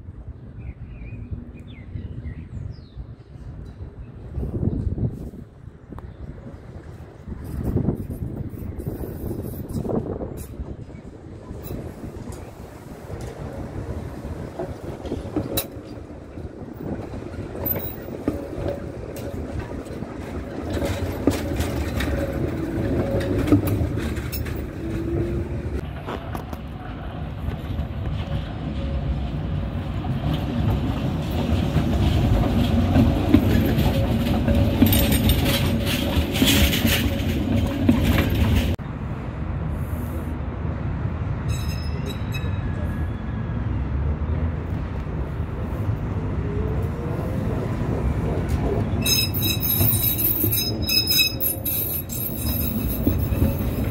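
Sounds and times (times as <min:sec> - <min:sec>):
steel wheels rumbling on rails: 0:02.0 - 0:38.9, 0:44.4 - 0:53.9
wheels clacking: 0:07.2 - 0:38.8, 0:47.7 - 0:53.9
high-pitched squeaks: 0:49.0 - 0:53.9.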